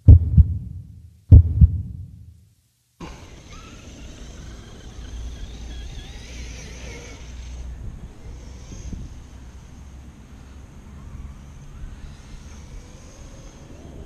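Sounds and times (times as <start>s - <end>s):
deep thumps: 0.0s - 2.4s
low steady rumble: 0.0s - 2.6s
electric motor whining: 3.0s - 9.0s.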